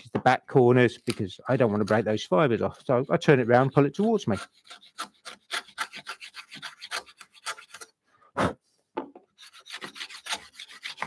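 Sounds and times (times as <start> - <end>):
plane blade scraping wood: 1.1 - 7.9, 9.4 - 11.0.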